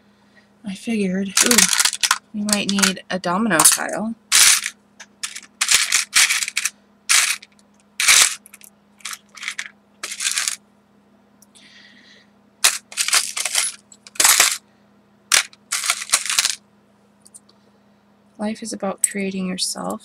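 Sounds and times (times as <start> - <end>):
small craft items rattling: 1.3 - 3.0, 3.6 - 10.6, 12.6 - 14.6, 15.3 - 16.6.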